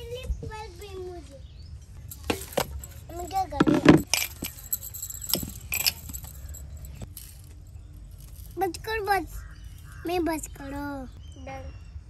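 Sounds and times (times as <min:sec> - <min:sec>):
metallic clinks and jingles: 0:02.0 - 0:10.6.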